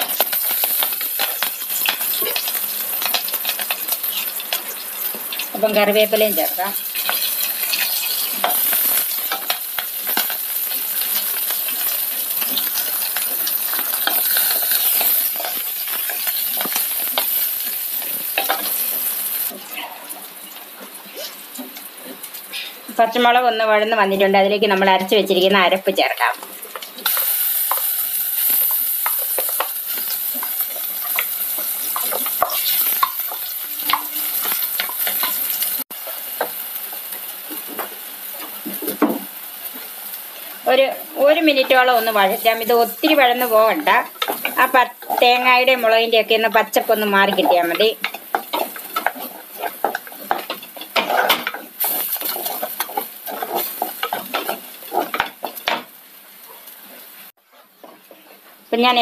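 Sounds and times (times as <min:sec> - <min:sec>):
paste sizzling in oil: 0:00.0 - 0:23.0, 0:24.5 - 0:58.8
wooden spatula scraping pot: 0:41.4 - 0:55.9.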